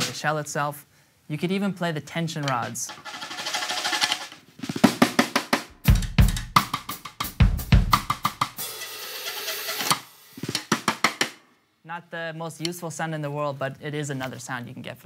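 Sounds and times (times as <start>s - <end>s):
deep drum thuds: 5.7s - 8.2s.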